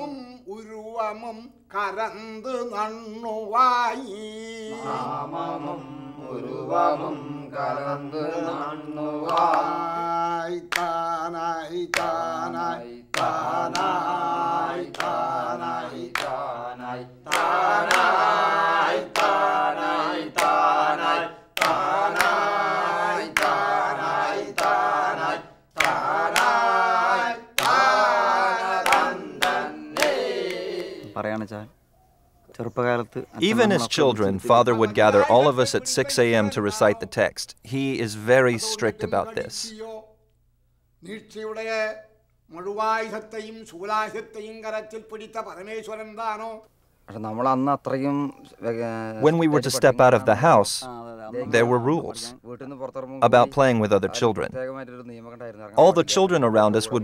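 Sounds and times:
men chanting verses: 0:00.0 - 0:31.5, 0:33.4 - 0:40.1, 0:41.0 - 0:57.0
hand claps: 0:09.2 - 0:09.7, 0:10.7 - 0:11.0, 0:11.9 - 0:12.2, 0:13.1 - 0:14.0, 0:14.9 - 0:15.2, 0:16.1 - 0:16.4, 0:17.3 - 0:18.2, 0:19.0 - 0:19.4, 0:20.3 - 0:20.6, 0:21.6 - 0:22.4, 0:23.2 - 0:23.7, 0:24.5 - 0:24.8, 0:25.7 - 0:26.7, 0:27.6 - 0:31.2.

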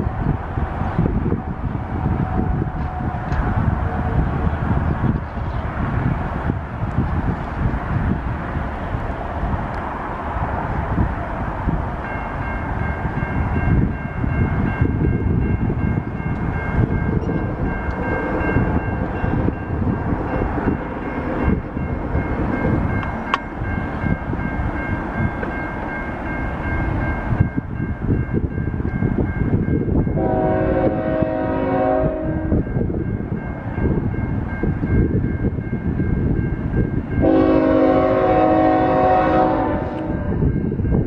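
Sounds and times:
freight train rumbling: 0:00.0 - 0:41.0
locomotive horn chord: 0:30.2 - 0:32.5, 0:37.2 - 0:40.3.

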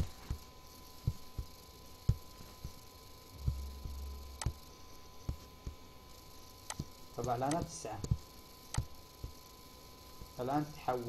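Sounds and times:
low electrical hum: 0:00.0 - 0:11.0
brief low drone: 0:03.4 - 0:04.7.

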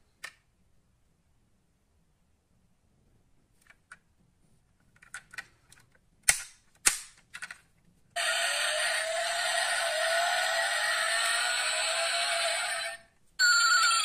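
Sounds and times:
clicks and snaps of toy car parts: 0:00.2 - 0:00.5, 0:04.9 - 0:07.7
tinny electronic sound: 0:08.2 - 0:14.0.

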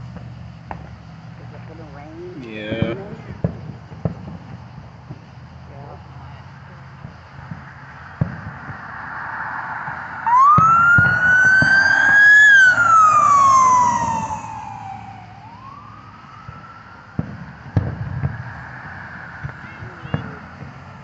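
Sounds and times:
emergency vehicle wail siren: 0:02.4 - 0:03.4, 0:07.4 - 0:21.0
fireworks booming: 0:02.6 - 0:05.6, 0:06.5 - 0:21.0.

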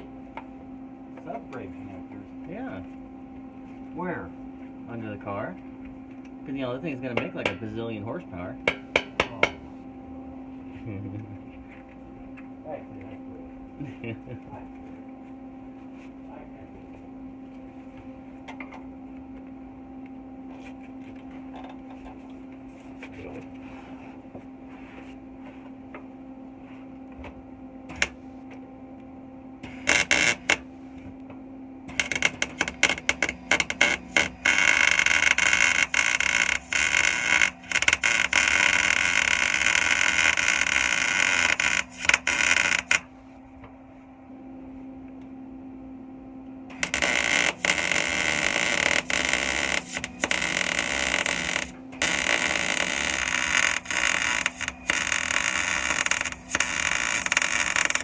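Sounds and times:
low steady hum: 0:00.0 - 0:58.0
welder arc crackling: 0:08.7 - 0:09.8, 0:27.9 - 0:28.3, 0:29.6 - 0:30.8, 0:31.9 - 0:43.2, 0:46.7 - 0:58.0.

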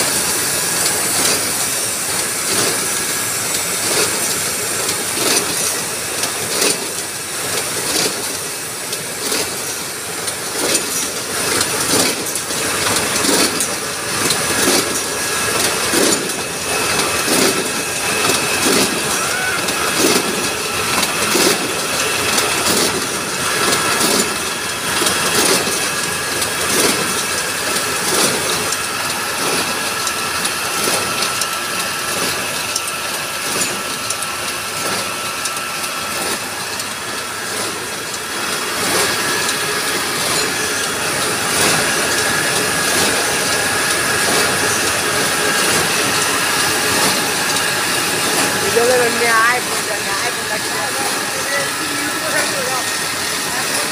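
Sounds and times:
machine rollers knocking: 0:00.0 - 0:53.9
steady high hum: 0:36.4 - 0:53.9.

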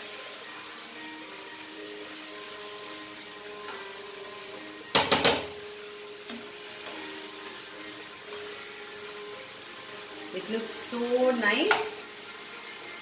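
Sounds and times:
curry sizzling in pan: 0:00.0 - 0:13.0
spatula knocking against pan: 0:04.9 - 0:05.6.

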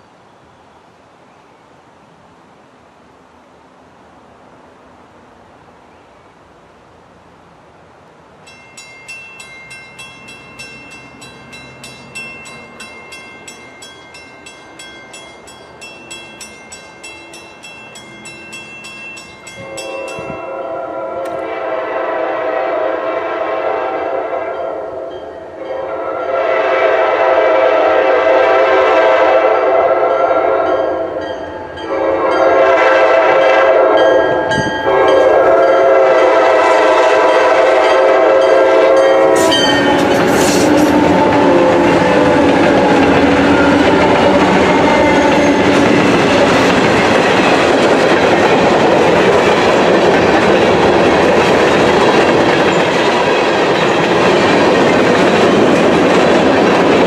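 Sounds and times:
crossing warning bell ringing: 0:08.4 - 0:21.4, 0:24.5 - 0:26.4, 0:29.5 - 0:57.0
locomotive air horn blasts: 0:19.6 - 0:31.1, 0:31.8 - 0:45.8.

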